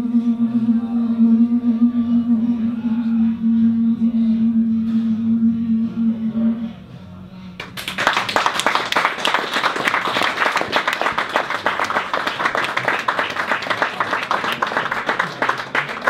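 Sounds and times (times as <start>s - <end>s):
audience applauding: 7.6s - 16.0s.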